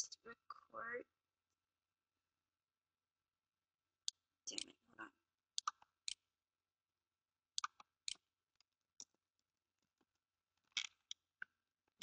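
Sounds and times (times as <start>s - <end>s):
computer mouse clicks: 5.6s - 6.2s, 7.6s - 8.2s.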